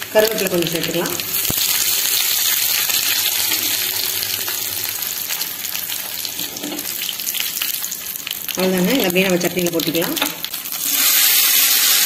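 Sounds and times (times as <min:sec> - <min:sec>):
curry leaves sizzling in hot oil: 0:00.0 - 0:12.0.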